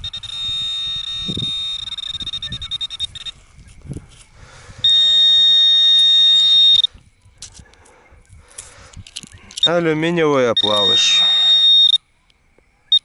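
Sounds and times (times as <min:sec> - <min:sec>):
metal detector electronic tone: 0:00.0 - 0:03.8, 0:04.8 - 0:07.0, 0:09.5 - 0:12.0.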